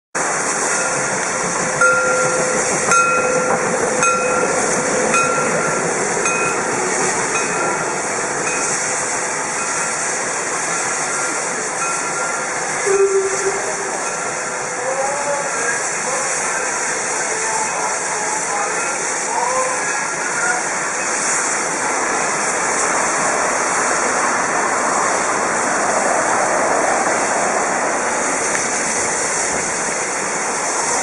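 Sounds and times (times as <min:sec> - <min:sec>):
steam locomotive hissing: 0:00.2 - 0:31.0
brief lower tone: 0:11.0 - 0:14.4
short ringing tones: 0:11.0 - 0:14.6.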